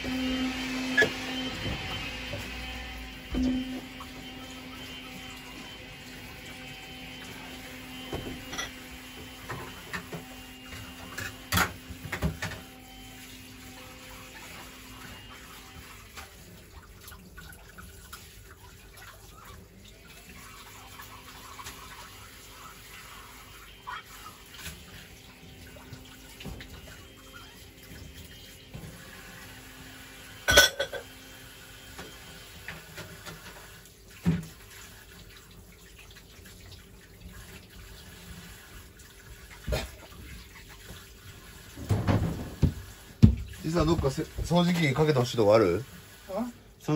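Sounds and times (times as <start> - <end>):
tap water running into sink: 0.0 - 46.9
sharp clatter of dishes: 30.5 - 31.1.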